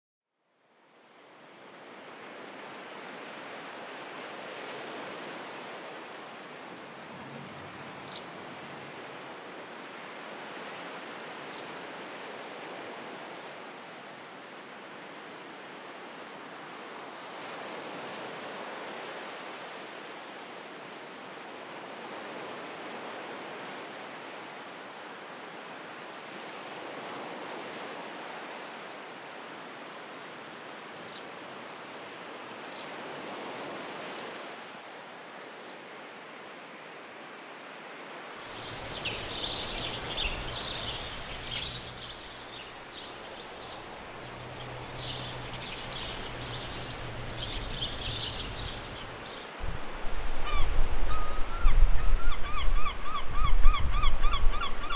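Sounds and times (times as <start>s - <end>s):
surf washing: 3.0s - 9.6s, 38.4s - 52.7s
high chirps: 38.6s - 49.2s.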